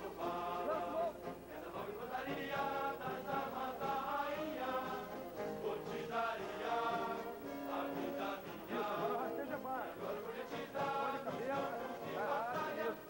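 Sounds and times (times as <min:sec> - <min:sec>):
choir singing held notes: 0:00.0 - 0:13.0.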